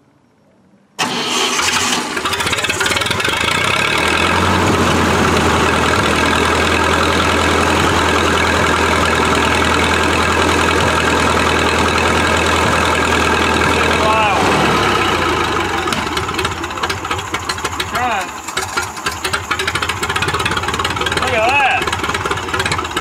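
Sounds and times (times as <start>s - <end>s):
gasoline engine running: 1.0s - 23.0s.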